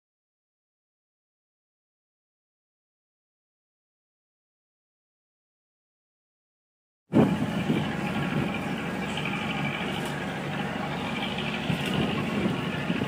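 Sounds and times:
boat engine running: 0:07.1 - 0:13.0
water noise: 0:07.1 - 0:13.0
wind noise: 0:07.1 - 0:13.0.

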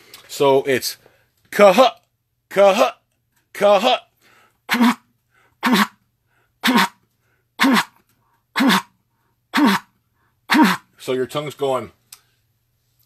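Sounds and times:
goose call spit notes: 0:04.7 - 0:05.0, 0:05.6 - 0:06.0, 0:06.6 - 0:07.0, 0:07.6 - 0:08.0, 0:08.6 - 0:08.9, 0:09.6 - 0:09.9, 0:10.5 - 0:10.9.

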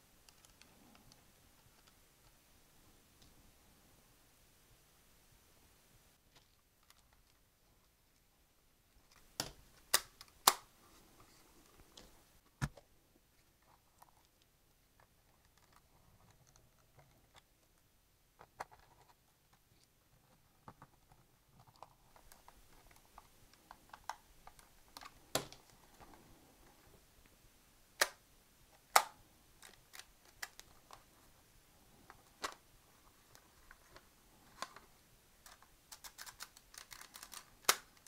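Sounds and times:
sharp plastic snaps: 0:09.1 - 0:10.7, 0:28.0 - 0:28.2, 0:28.8 - 0:31.0, 0:35.4 - 0:38.0
plastic parts clicking and knocking: 0:20.6 - 0:26.2, 0:33.2 - 0:38.0.

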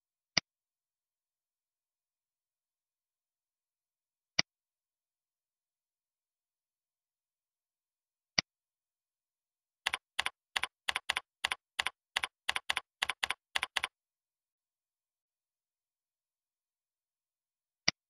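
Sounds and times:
keyboard typing: 0:09.8 - 0:14.0.

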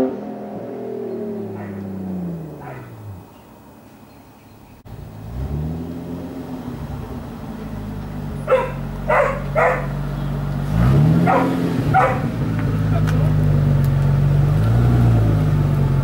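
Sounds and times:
dog barking: 0:01.5 - 0:01.9, 0:02.6 - 0:03.0, 0:08.4 - 0:10.0, 0:11.2 - 0:12.3
car engine running: 0:04.9 - 0:16.0.

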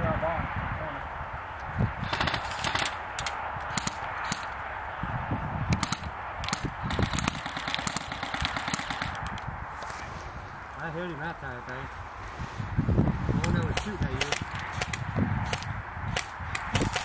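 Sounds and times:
airsoft guns firing: 0:02.0 - 0:04.6, 0:05.8 - 0:09.3, 0:13.8 - 0:17.0.

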